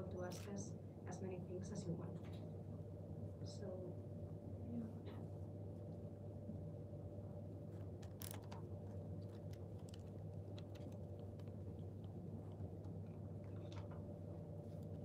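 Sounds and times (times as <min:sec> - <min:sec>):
low room hum: 0:00.0 - 0:15.0
faint handling clicks and knocks: 0:07.7 - 0:15.0.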